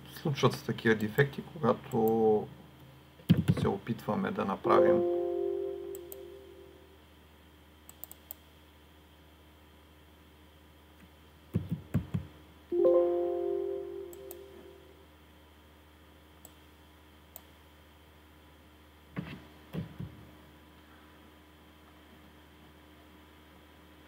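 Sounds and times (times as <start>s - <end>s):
computer alert chime: 4.7s - 6.7s, 12.8s - 14.8s
mouse clicks: 7.9s - 8.4s, 14.1s - 14.4s.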